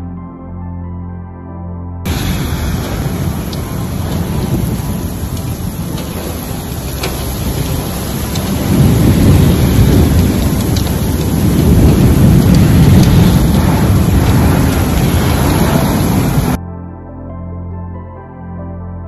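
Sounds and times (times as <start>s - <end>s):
deep thunder rumble: 2.1s - 16.6s
torrential rain hiss: 2.1s - 16.6s.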